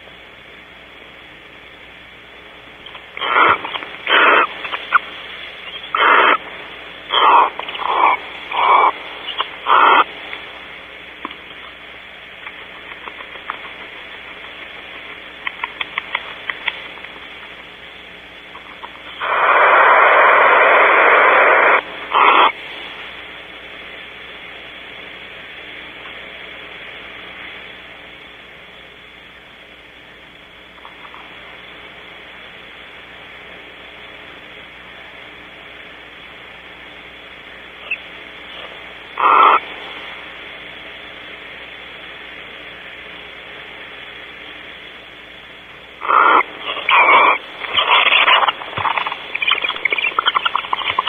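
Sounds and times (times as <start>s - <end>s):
owl clicks: 2.8s - 6.4s, 7.1s - 10.4s, 12.4s - 17.2s, 39.2s - 39.6s, 46.0s - 51.0s
owls hissing screeches: 3.2s - 6.4s, 7.1s - 10.1s, 39.2s - 39.6s, 46.0s - 51.0s.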